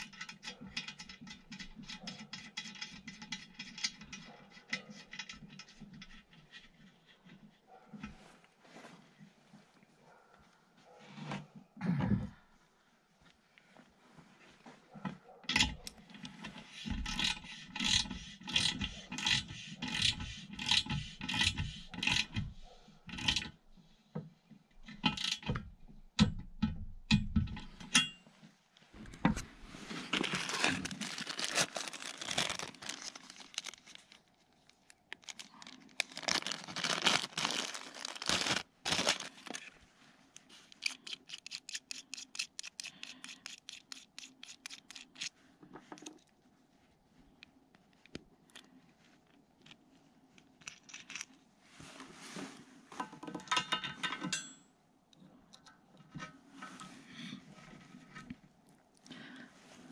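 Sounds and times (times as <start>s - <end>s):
cardboard box and packaging rustling: 28.9s - 39.9s.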